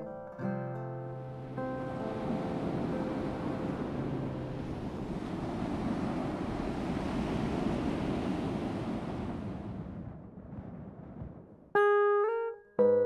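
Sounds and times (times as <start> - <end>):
sea surf washing on sand: 1.3 - 10.1.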